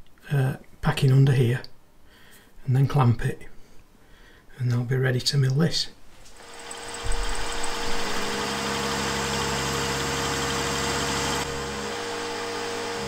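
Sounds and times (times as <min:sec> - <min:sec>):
milling machine motor whine: 0:06.4 - 0:13.0.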